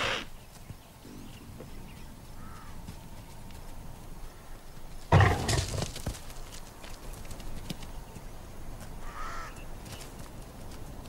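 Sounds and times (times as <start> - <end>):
antelope snorting: 0.0 - 0.3, 5.1 - 5.8.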